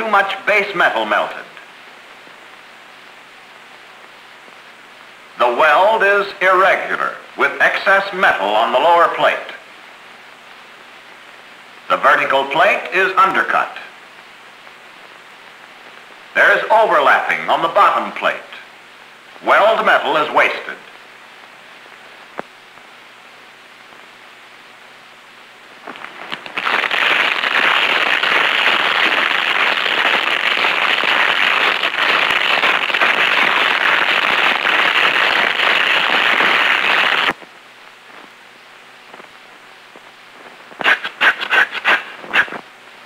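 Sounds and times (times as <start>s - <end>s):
welding arc crackling: 25.7s - 38.4s, 39.0s - 42.7s.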